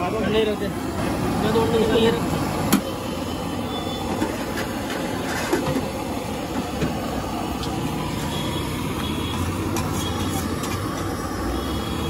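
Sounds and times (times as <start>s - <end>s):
metal utensils scraping griddle: 4.5s - 5.8s.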